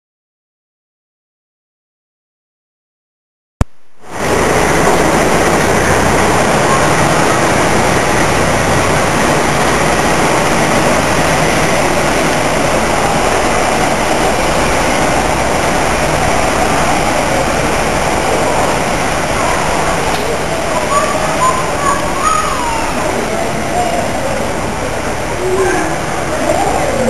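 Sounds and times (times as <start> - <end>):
diesel locomotive engines running: 4.1 - 27.0.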